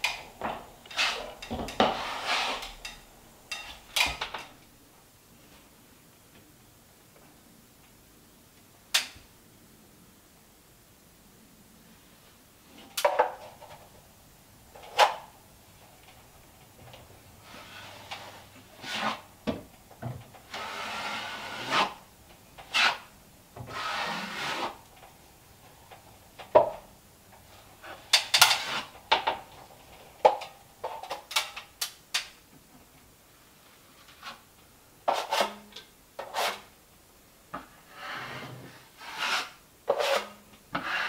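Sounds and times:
hand tool scraping drywall: 0.4s - 3.8s, 17.4s - 19.3s, 20.5s - 22.0s, 22.6s - 24.8s, 27.8s - 29.0s, 35.1s - 35.6s, 36.2s - 36.7s, 37.9s - 41.0s.

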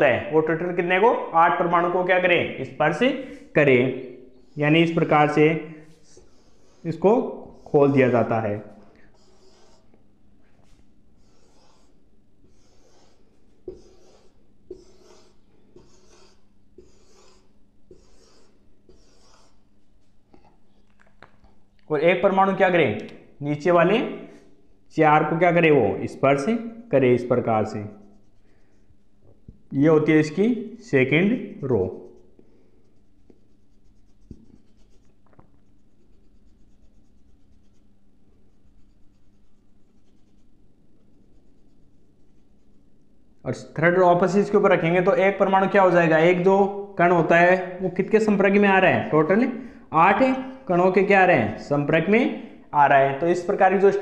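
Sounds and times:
marker scratching on whiteboard: 4.3s - 10.0s, 10.6s - 20.6s, 27.6s - 29.2s, 31.9s - 43.1s.

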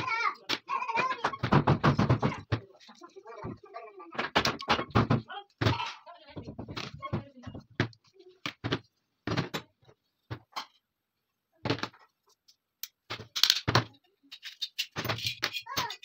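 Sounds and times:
metal parts knocking on wooden table: 13.1s - 16.0s.

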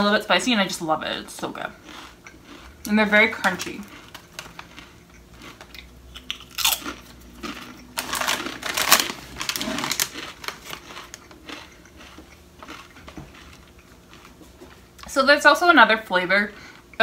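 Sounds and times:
chips being chewed: 1.3s - 15.1s
chip bag crinkling: 1.8s - 14.4s.

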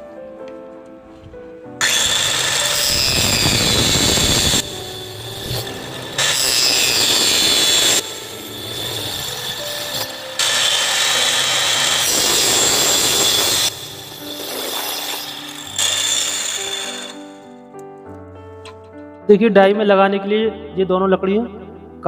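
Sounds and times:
background music: 0.0s - 22.0s
circular saw cutting wood: 1.8s - 17.5s.

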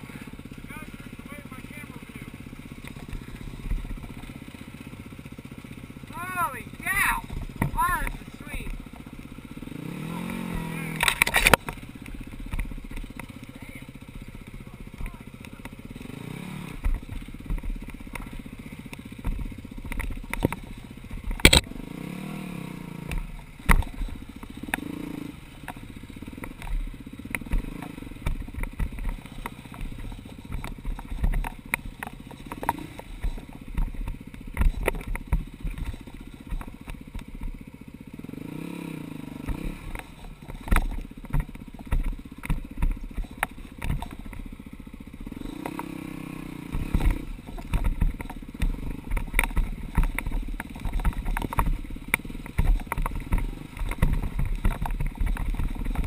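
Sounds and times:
dirt bike engine running: 0.0s - 56.0s
bike knocking over rocks: 7.2s - 9.1s, 10.3s - 21.7s, 23.1s - 37.7s, 39.4s - 44.6s, 46.6s - 56.0s.

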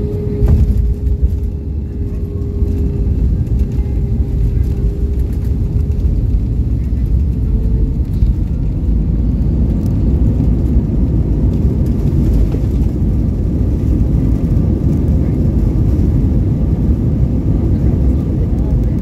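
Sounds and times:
airplane engines and wheels rumbling: 0.0s - 19.0s.

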